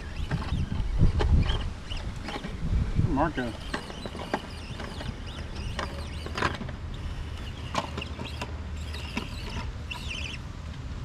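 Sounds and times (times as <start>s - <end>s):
wind rumble on microphone: 0.0s - 7.7s
birds chirping: 0.0s - 10.4s.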